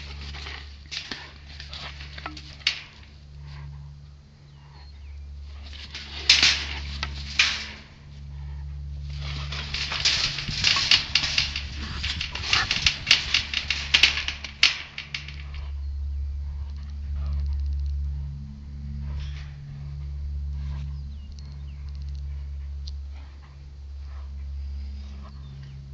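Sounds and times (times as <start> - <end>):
deer thrashing in trap: 0.0 - 3.8, 5.4 - 15.8
wire panels rattling: 0.0 - 4.0, 4.6 - 17.5.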